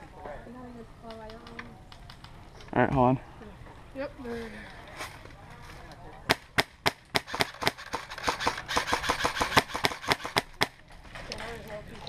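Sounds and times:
airsoft gun firing shots: 6.3 - 10.8.

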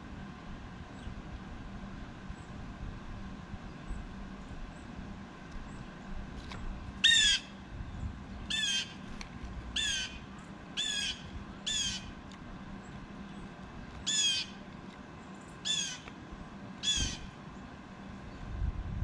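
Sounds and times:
blue jay squawking call: 7.0 - 7.6, 8.5 - 9.0, 9.7 - 12.2, 14.0 - 14.6, 15.6 - 16.1, 16.8 - 17.4.

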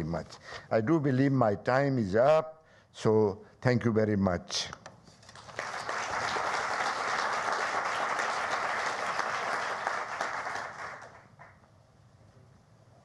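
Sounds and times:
audience applauding: 5.4 - 11.6.

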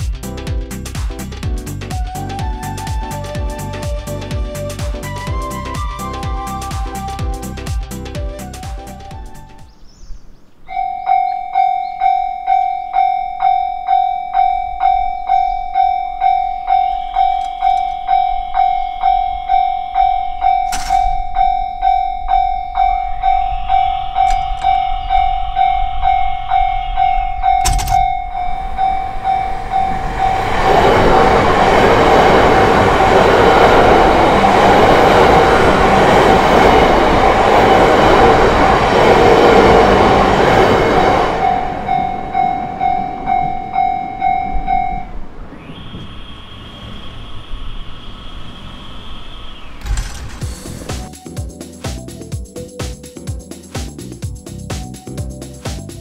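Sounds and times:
train passing over rails: 0.0 - 9.0, 11.6 - 52.6
level crossing alarm bell ringing: 10.7 - 30.5, 41.4 - 45.2.

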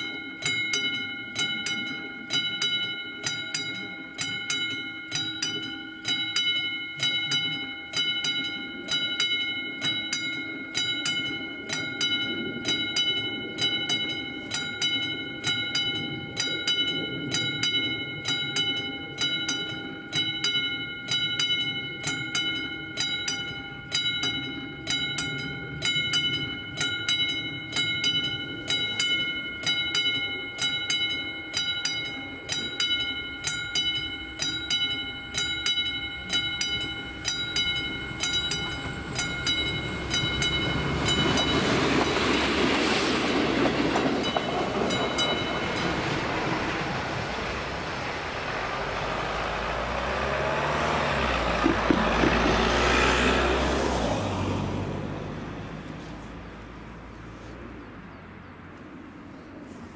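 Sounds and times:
level crossing bell ringing: 0.0 - 55.4
low rumble: 36.1 - 57.1.

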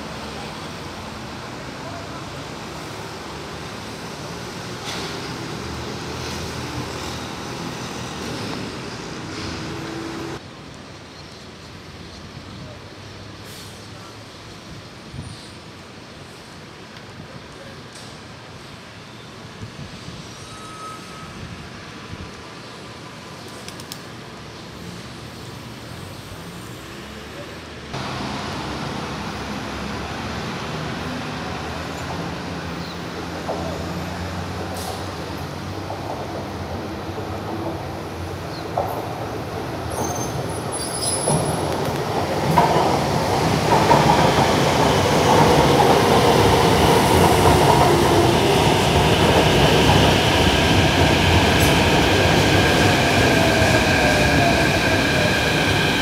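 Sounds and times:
road traffic: 0.0 - 56.0
train running hum: 24.2 - 56.0.

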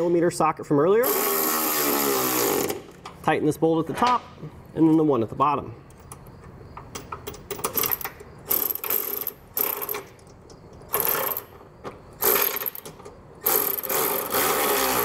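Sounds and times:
cordless ratchet spinning: 13.4 - 15.0.

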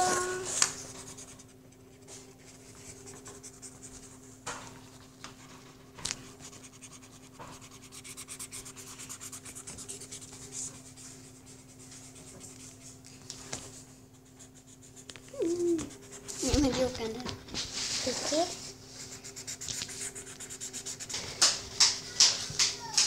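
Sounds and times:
low steady hum: 0.0 - 22.2
felt-tip marker scribbling on paper: 6.4 - 10.8, 19.0 - 21.2.

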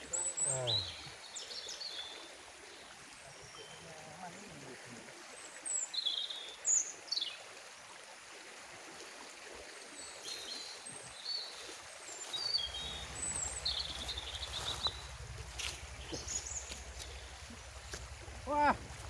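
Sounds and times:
river rushing: 9.0 - 19.0
high bird chirps: 12.2 - 18.0
low pulsing hum: 12.6 - 19.0.

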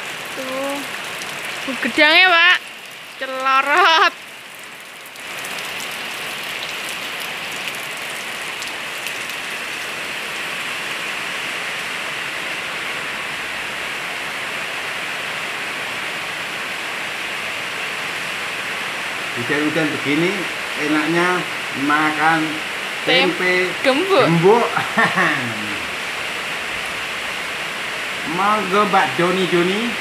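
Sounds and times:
heavy rain falling: 0.0 - 30.0
raindrop ticks: 0.8 - 9.9.

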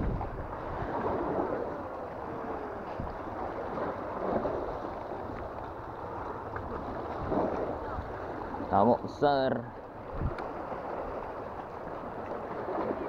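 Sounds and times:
wind on microphone: 0.0 - 8.8, 9.9 - 11.3
sea water washing against rocks: 0.0 - 13.0.

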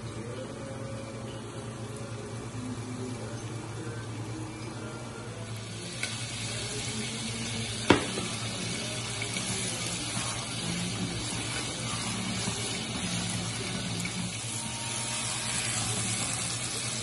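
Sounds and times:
meat sizzling in a pot: 5.5 - 17.0
sharp knock: 7.9 - 8.3.

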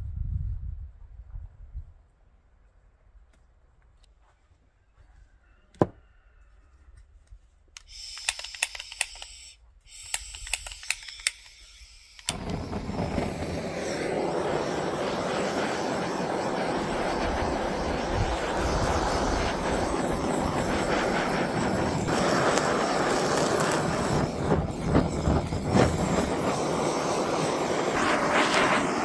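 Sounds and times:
gas torch igniter clicks: 7.8 - 14.1
gas torch flame roaring: 7.8 - 29.0
high gas hiss: 7.8 - 29.0.

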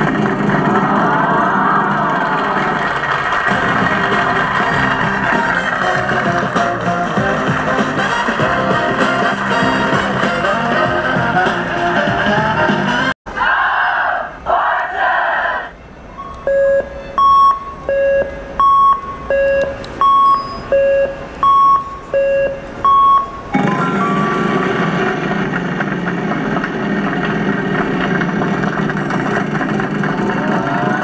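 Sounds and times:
slot machine two-tone chime: 22.2 - 24.7
loud noisy wash of sound: 23.5 - 31.0.

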